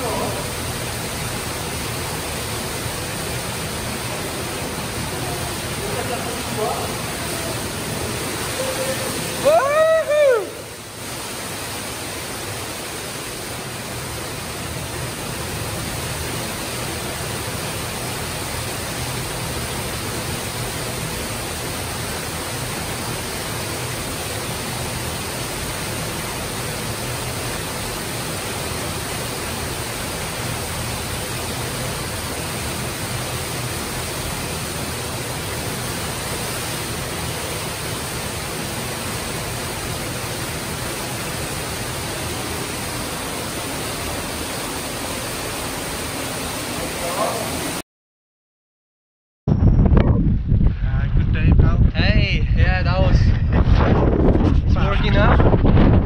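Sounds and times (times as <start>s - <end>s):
waterfall pouring into pool: 0.0s - 47.8s
person shouting: 8.5s - 10.7s.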